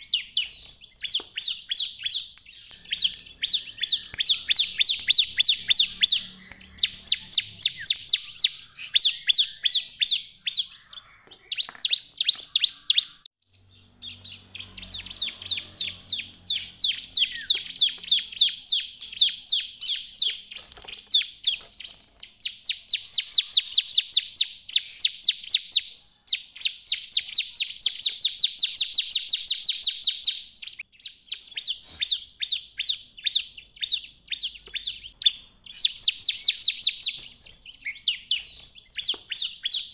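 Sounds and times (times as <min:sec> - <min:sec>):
bird chirping rapidly: 0:00.0 - 0:39.9.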